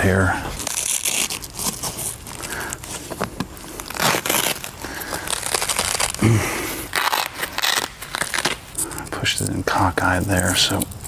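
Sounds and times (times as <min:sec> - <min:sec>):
leather and fabric rustling: 0:00.5 - 0:06.2.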